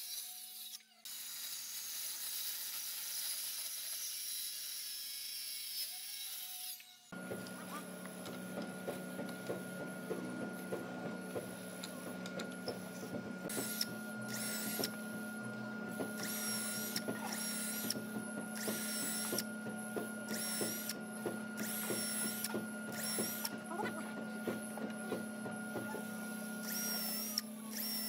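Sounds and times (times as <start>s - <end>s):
power tool whirring in bursts: 0.0s - 28.0s
steady machine hum: 7.1s - 28.0s.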